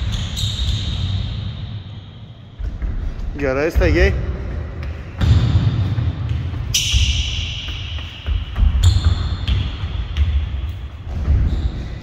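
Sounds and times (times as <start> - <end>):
footfalls sprinting on hall floor: 2.5 - 12.0.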